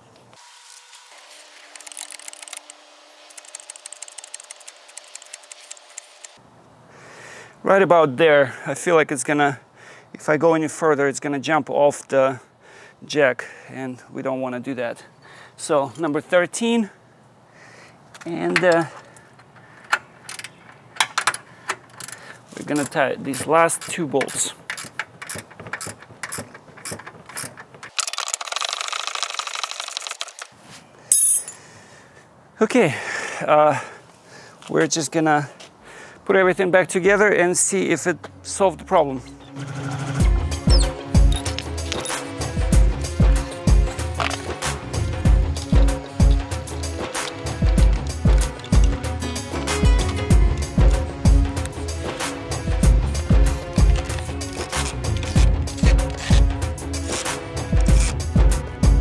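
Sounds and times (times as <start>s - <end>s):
jack metallic clicks: 18.1s - 30.5s, 39.3s - 58.3s.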